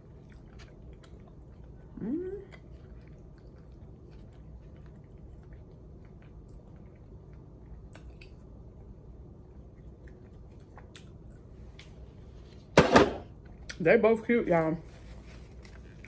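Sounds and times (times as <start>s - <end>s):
chewing: 0.0s - 12.0s, 15.4s - 16.0s.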